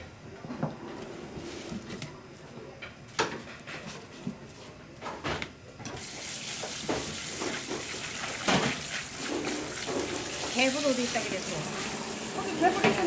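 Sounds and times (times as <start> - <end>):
faucet water running: 6.0 - 13.0.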